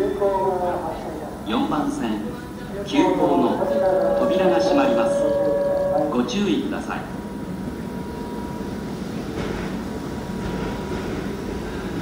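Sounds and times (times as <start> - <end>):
train motors and wheels: 0.0 - 12.0
thin steady tone: 3.0 - 8.5.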